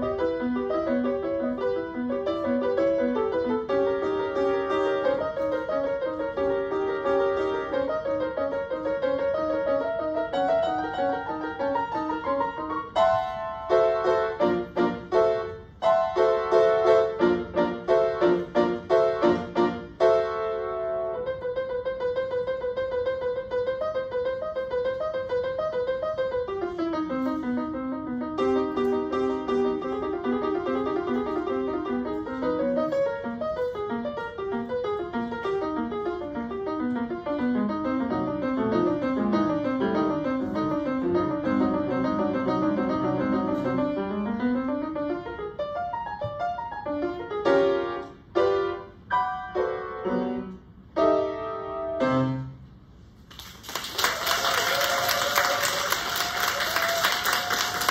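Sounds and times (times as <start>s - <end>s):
grand piano playing: 0.0s - 53.2s
audience applause: 53.3s - 57.9s.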